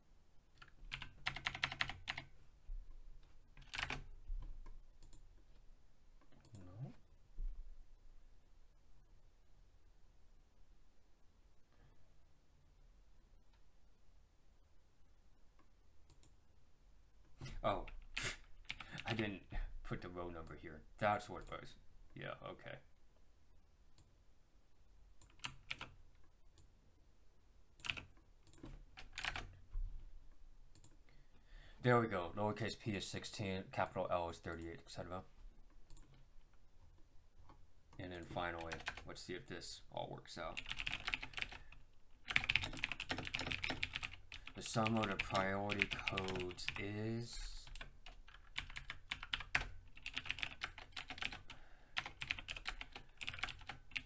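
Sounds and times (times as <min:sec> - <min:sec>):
typing on keyboard: 0:00.6 - 0:02.3, 0:03.6 - 0:05.2, 0:17.9 - 0:19.2, 0:25.2 - 0:26.0, 0:27.8 - 0:29.6, 0:38.6 - 0:39.0, 0:40.6 - 0:46.8, 0:47.6 - 0:54.0.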